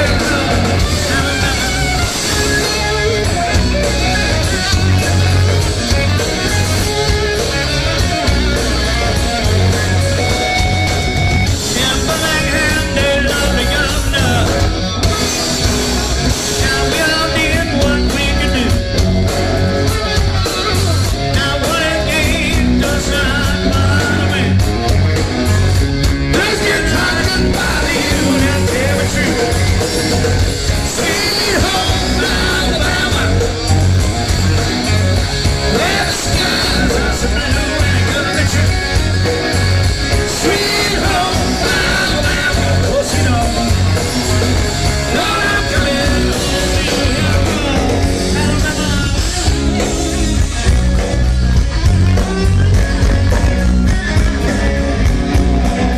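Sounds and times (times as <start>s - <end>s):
man singing: 0.0s - 5.5s, 11.5s - 14.8s, 16.3s - 19.0s, 21.1s - 24.8s, 26.3s - 33.9s, 35.6s - 39.4s, 40.1s - 50.0s
rock band playing: 0.0s - 55.9s.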